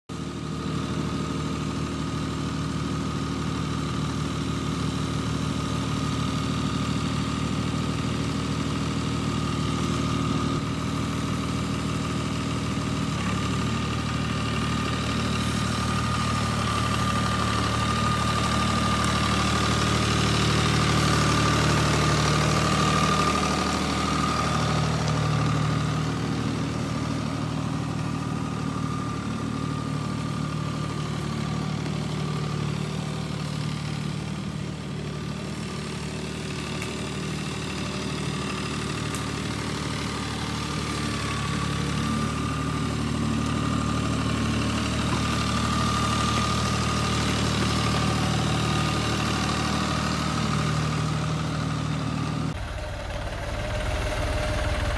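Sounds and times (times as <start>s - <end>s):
tractor diesel engine running: 0.1s - 54.9s
high whine: 52.6s - 54.9s.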